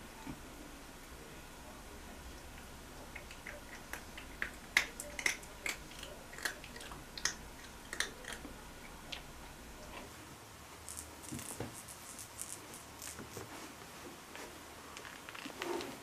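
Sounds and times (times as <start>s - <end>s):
cat chewing wet food: 3.1s - 9.3s.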